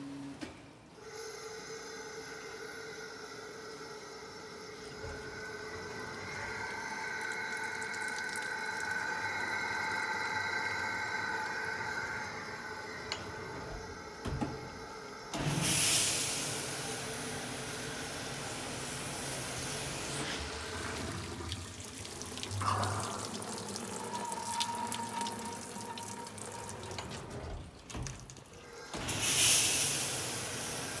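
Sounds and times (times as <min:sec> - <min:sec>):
dishwasher mechanical whine: 0:08.9 - 0:31.0.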